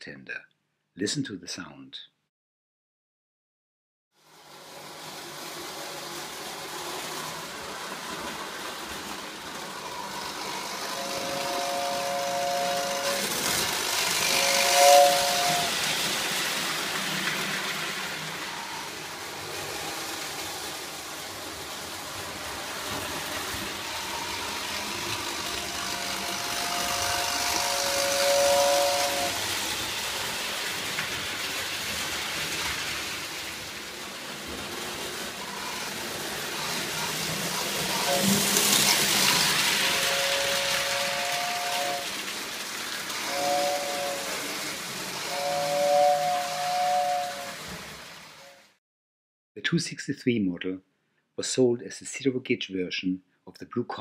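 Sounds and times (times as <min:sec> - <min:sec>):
toy train whirring on track: 0:04.2 - 0:48.7
toy train two-tone whistle: 0:04.4 - 0:21.3, 0:22.2 - 0:31.8, 0:35.2 - 0:48.8.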